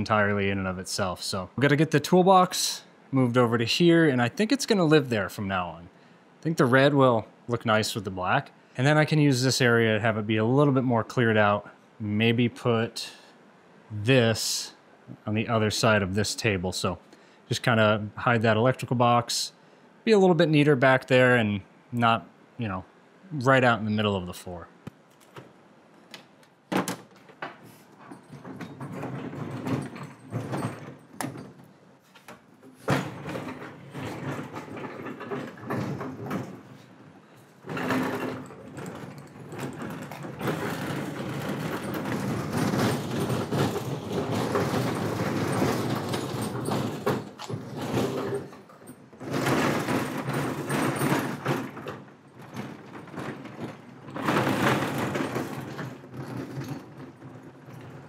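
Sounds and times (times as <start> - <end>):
knocks and clunks: 24.8 - 58.0
tool chest casters rumbling on concrete: 26.7 - 58.0.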